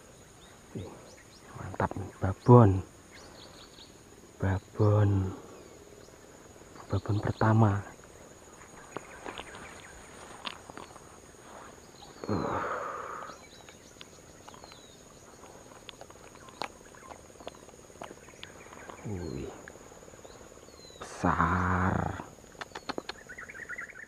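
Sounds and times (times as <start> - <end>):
insects buzzing: 0.0 - 24.0
footsteps rustling through grass: 8.4 - 12.2
low grunt-like sound: 12.2 - 13.3.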